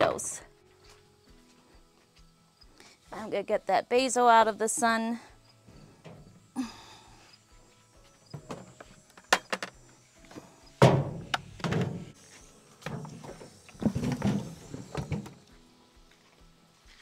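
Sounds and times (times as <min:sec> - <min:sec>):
bucket knocks: 0:10.8 - 0:12.1, 0:12.9 - 0:15.4
heavy thunk: 0:10.8 - 0:12.1.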